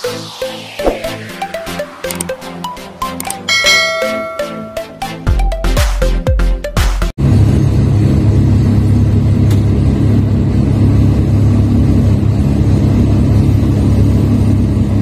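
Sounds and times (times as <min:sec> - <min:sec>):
heavy machinery engine droning: 0:07.2 - 0:15.0.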